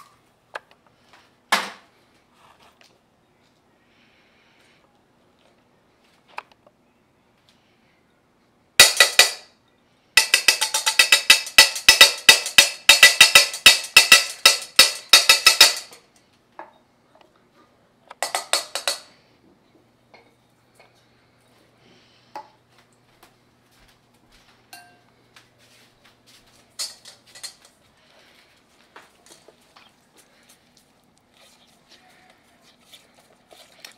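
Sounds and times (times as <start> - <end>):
utensil clinking in metal bowl: 10.2 - 16.0, 18.2 - 19.2, 24.7 - 25.0, 26.7 - 28.3.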